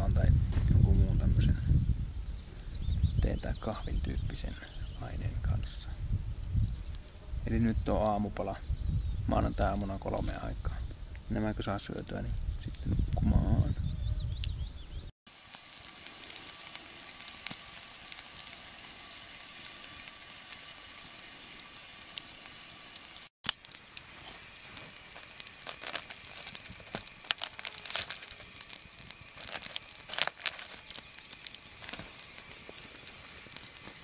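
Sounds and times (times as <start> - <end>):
campfire embers hissing: 0.0 - 34.0
aluminium foil crinkling: 15.4 - 34.0
fork scraping on foil: 24.1 - 32.8.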